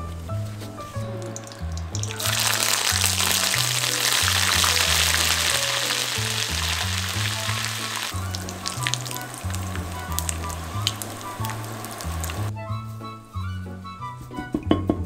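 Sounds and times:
background music: 0:00.0 - 0:15.0
shrimp sizzling in hot oil: 0:01.0 - 0:12.5.

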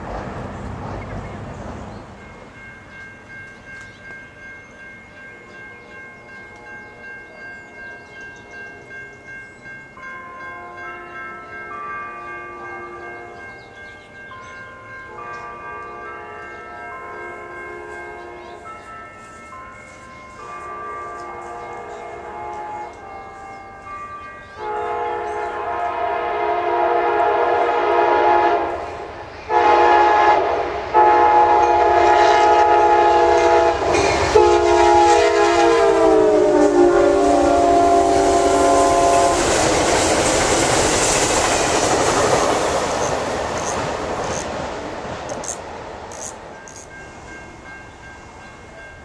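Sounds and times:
train cars and wheels passing: 0:00.0 - 0:49.0
locomotive horn blasts: 0:15.1 - 0:18.6, 0:20.4 - 0:23.7, 0:24.6 - 0:39.8.

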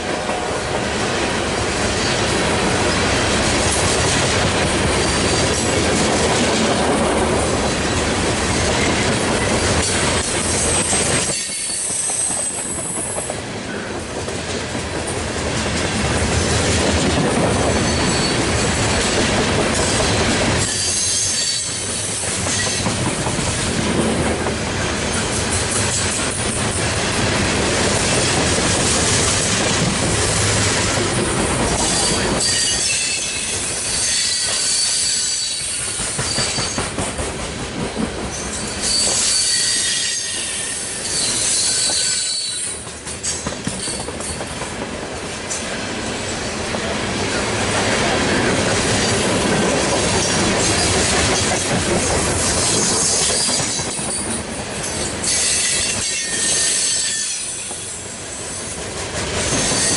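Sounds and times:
train wheels rumbling on rails: 0:00.0 - 0:59.9
high-pitched wheel squeals: 0:10.7 - 0:13.2, 0:17.7 - 0:18.7, 0:20.6 - 0:22.8, 0:31.9 - 0:36.8, 0:38.4 - 0:42.8, 0:55.2 - 0:57.8.

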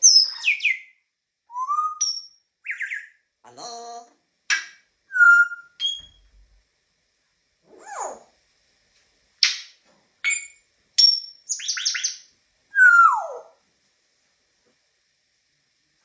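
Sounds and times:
parrot whistling and chirping: 0:00.0 - 0:03.2, 0:04.5 - 0:06.3, 0:09.4 - 0:13.5.

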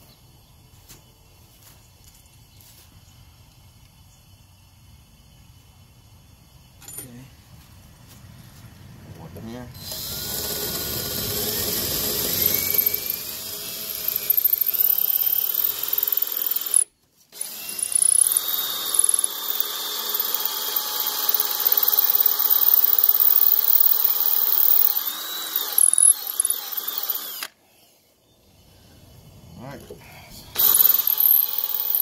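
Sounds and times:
drill boring into brick: 0:09.8 - 0:27.6, 0:30.6 - 0:32.0.

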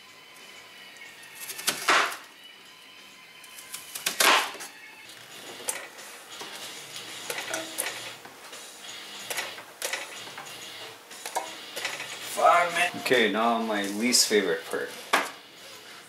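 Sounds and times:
kitchen utensils clattering: 0:07.2 - 0:08.2, 0:11.2 - 0:13.1.

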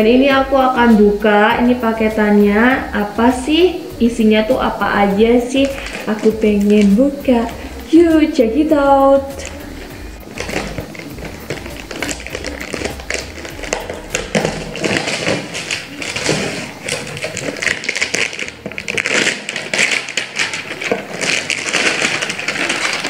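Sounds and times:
packing tape peeling from cardboard: 0:05.4 - 0:06.9, 0:09.3 - 0:23.0
box being handled: 0:10.2 - 0:23.0.

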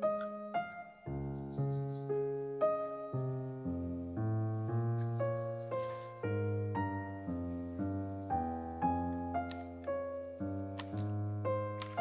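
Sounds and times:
piano melody over bass line: 0:00.0 - 0:12.0.

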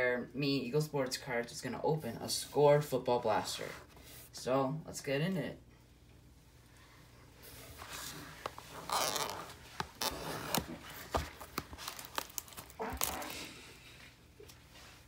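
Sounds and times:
plastic wrap tearing and crinkling: 0:08.7 - 0:13.6.

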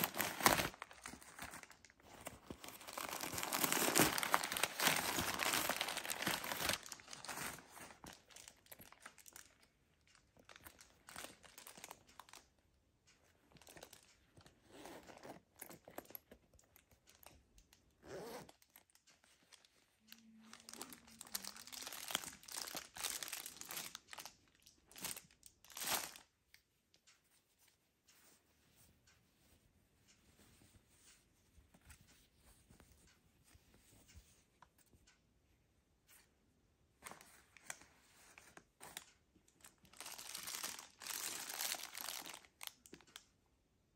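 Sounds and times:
bag handling rustles: 0:00.0 - 0:08.2
paper crinkling: 0:00.0 - 0:12.4, 0:18.6 - 0:26.2, 0:37.0 - 0:43.2.

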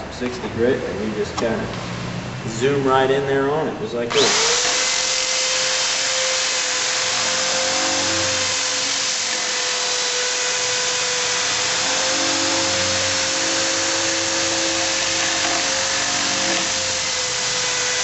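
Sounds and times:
electric drill motor whine: 0:04.1 - 0:18.0.

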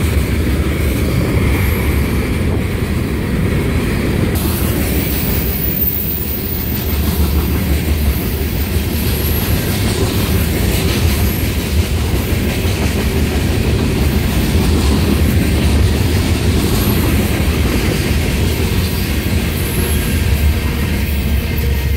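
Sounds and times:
train wheels rumbling on rails: 0:00.0 - 0:21.9
high wheel squeals: 0:04.9 - 0:07.1.

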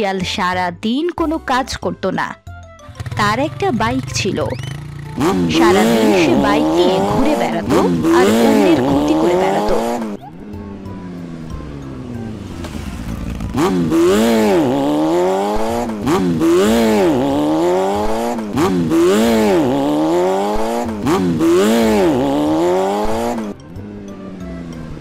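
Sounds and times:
motorcycle engine revving: 0:02.7 - 0:25.0.

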